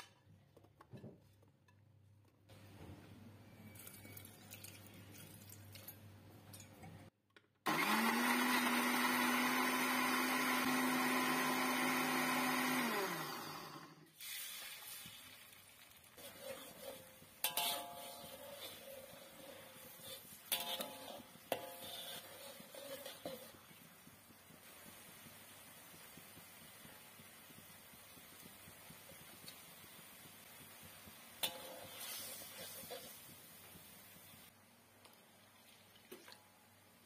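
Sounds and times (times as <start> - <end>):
blender motor whining: 7.7 - 14.1.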